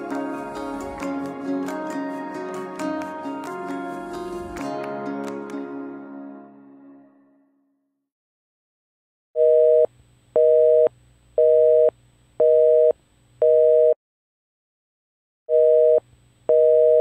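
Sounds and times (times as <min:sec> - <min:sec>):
telephone busy signal beeps: 0:15.5 - 0:17.0.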